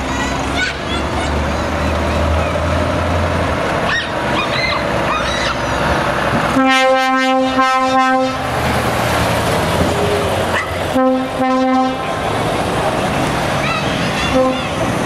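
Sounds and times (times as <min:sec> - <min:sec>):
truck diesel engine pulling away: 0:00.0 - 0:06.6, 0:07.4 - 0:15.0
air horn toots: 0:06.6 - 0:08.5, 0:11.0 - 0:12.0, 0:14.3 - 0:14.8.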